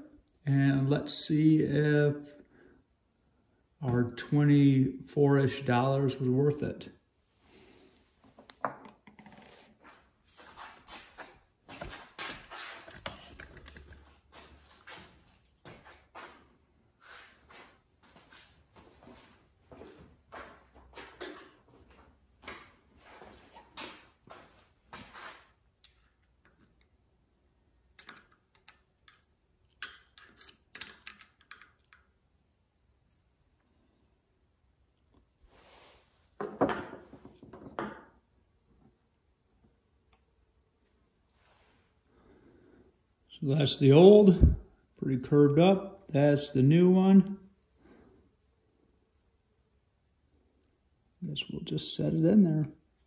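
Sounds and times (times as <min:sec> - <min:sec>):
small metal parts clicking: 0:28.0 - 0:32.1.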